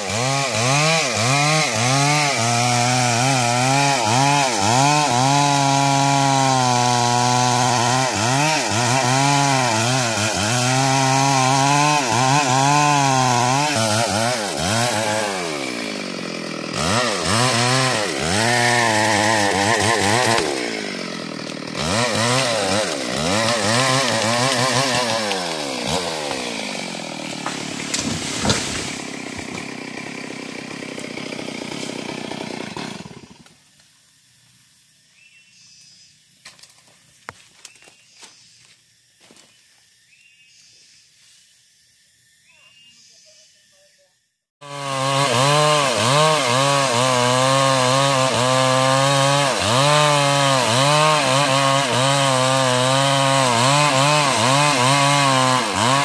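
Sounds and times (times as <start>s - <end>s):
chainsaw cutting wood: 0.0s - 33.6s, 44.6s - 56.0s
sharp wood crack: 16.6s - 33.6s.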